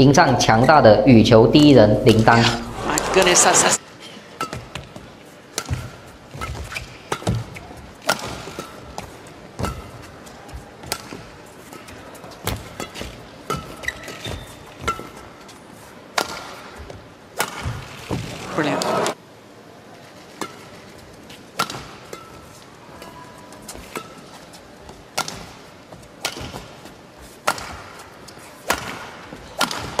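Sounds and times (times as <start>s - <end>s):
shoe squeaks on court floor: 13.8s - 14.6s
rackets hitting shuttlecock: 25.2s - 25.6s, 26.2s - 26.7s, 27.4s - 28.0s, 28.6s - 30.0s.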